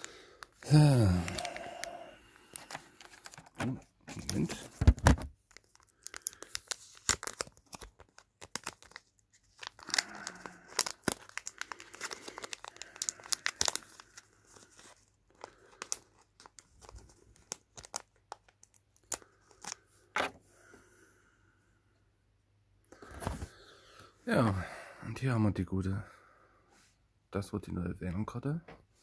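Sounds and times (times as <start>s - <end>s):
packaging torn and crinkled: 0.4s - 19.8s.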